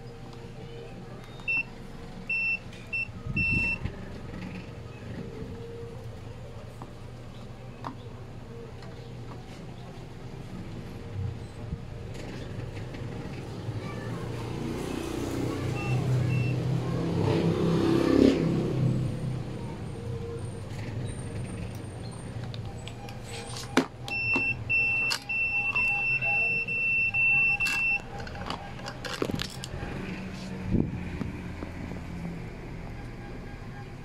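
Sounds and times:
high electronic beep: 0:01.3 - 0:01.7, 0:02.3 - 0:03.8, 0:15.7 - 0:16.6, 0:23.0 - 0:28.8.

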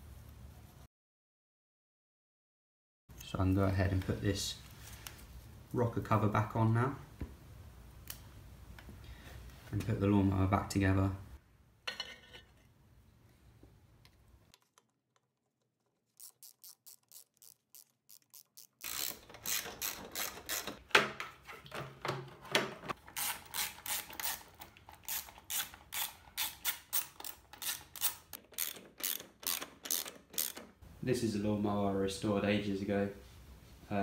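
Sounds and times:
hand ratchet clicking: 0:16.2 - 0:20.8, 0:23.2 - 0:30.8.

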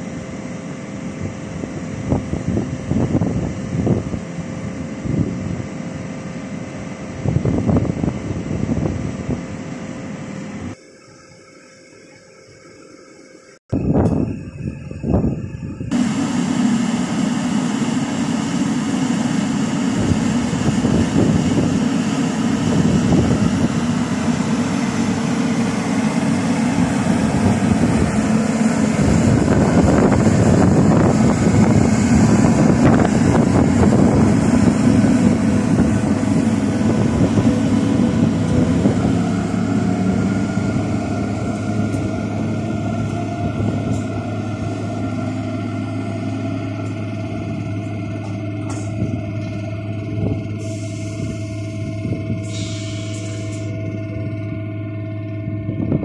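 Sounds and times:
train wheels rumbling and clattering: 0:14.0 - 0:56.0.

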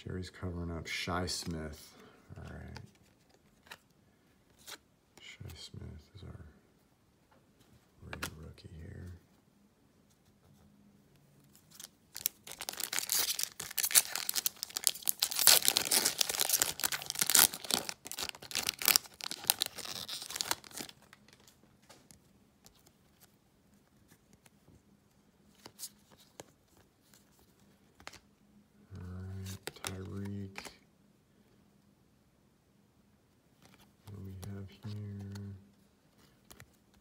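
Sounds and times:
wrapper tearing and crinkling: 0:11.7 - 0:21.5.

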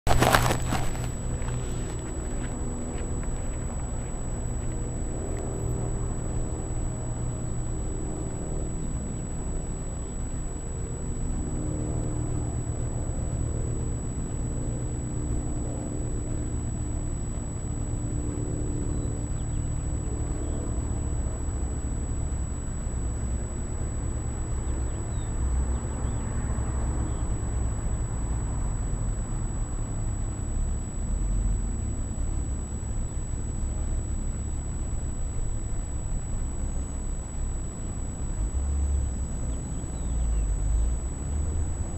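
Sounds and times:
steady low rumble: 0:00.0 - 0:07.6, 0:27.6 - 0:41.9
quadcopter motors humming: 0:00.1 - 0:26.4, 0:27.0 - 0:41.9.

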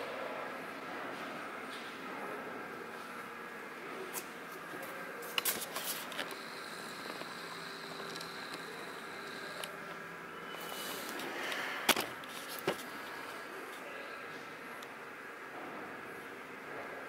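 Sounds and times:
faint high whine: 0:04.8 - 0:14.6.

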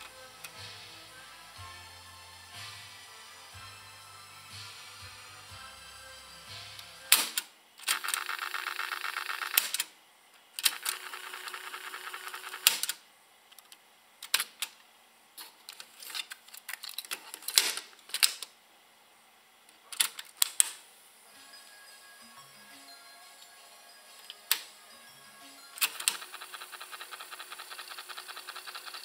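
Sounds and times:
tape fast-winding whir: 0:00.0 - 0:09.7, 0:10.6 - 0:12.9, 0:21.2 - 0:29.0.

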